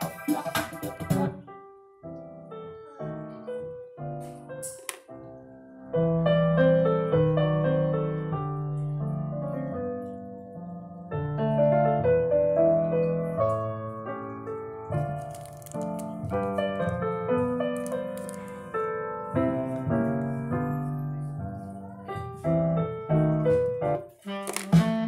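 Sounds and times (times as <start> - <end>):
busy music track on loudspeaker: 0.0 - 1.4, 24.1 - 25.0
piano-like keyboard tune: 0.0 - 25.0.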